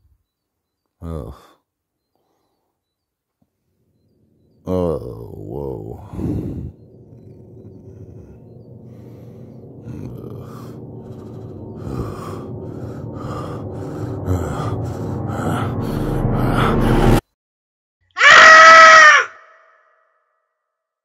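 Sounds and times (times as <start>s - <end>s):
low steady drone: 3.7s - 17.2s
panicked gasping breaths: 6.0s - 17.2s
person crying out: 18.2s - 19.3s.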